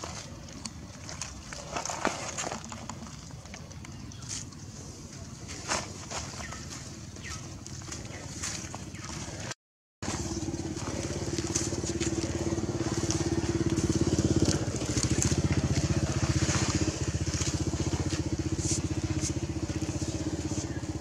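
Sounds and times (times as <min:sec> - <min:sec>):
engine pulsing: 0:10.0 - 0:21.0.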